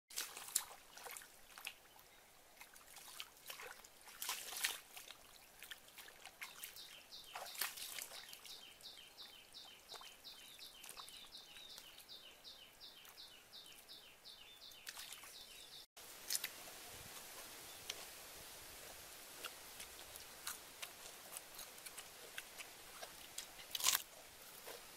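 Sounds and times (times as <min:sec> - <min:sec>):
hands splashing in water: 0:00.1 - 0:01.8, 0:02.7 - 0:08.5
faint outdoor hiss: 0:00.2 - 0:24.9.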